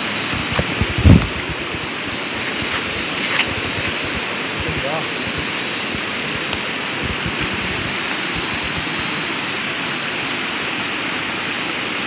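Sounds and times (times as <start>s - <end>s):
wind buffeting microphone: 0.0s - 9.3s
high-pitched whine: 0.0s - 12.0s.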